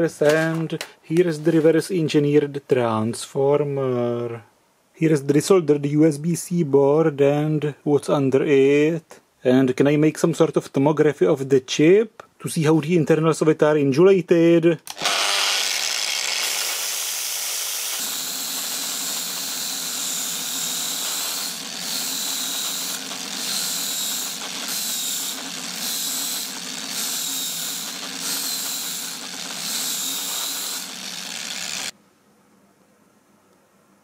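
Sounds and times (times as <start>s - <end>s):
angle grinder grinding: 14.9s - 32.0s.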